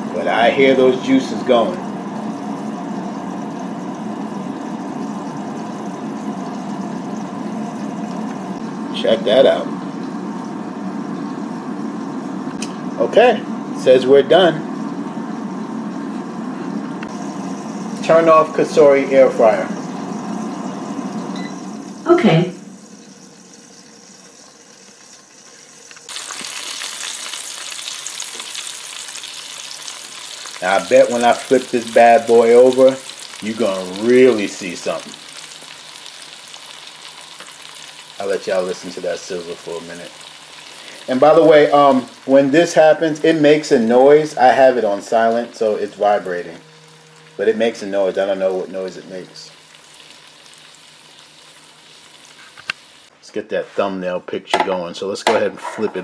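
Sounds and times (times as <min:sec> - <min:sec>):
air fryer fan humming: 0:00.0 - 0:56.0
meat juices sizzling: 0:17.1 - 0:53.1.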